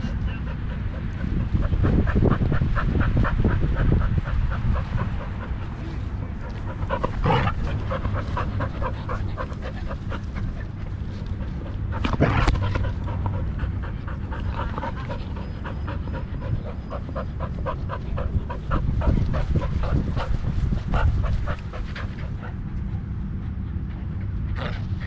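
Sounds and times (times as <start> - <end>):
dog panting quickly: 0.0 - 25.0
rumbling movement: 0.0 - 25.0
wind noise: 0.0 - 25.0.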